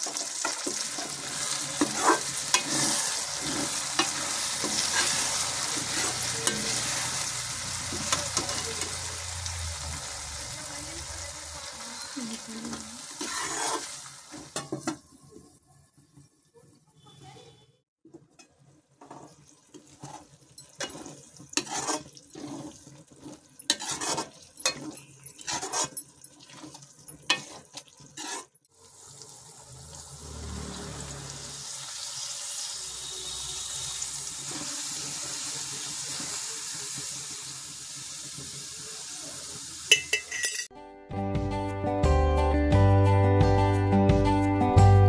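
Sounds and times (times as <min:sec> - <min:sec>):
sizzling hiss: 0:00.0 - 0:14.6, 0:28.7 - 0:40.4
metal spoon scraping steel pan: 0:00.4 - 0:09.0, 0:12.0 - 0:15.0, 0:18.4 - 0:28.6, 0:39.9 - 0:40.7.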